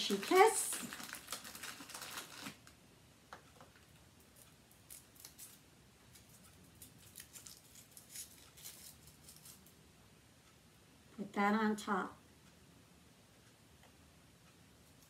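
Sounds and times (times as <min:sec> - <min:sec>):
foil wrapper crinkling: 0:00.0 - 0:02.8, 0:04.8 - 0:05.6, 0:06.2 - 0:09.7.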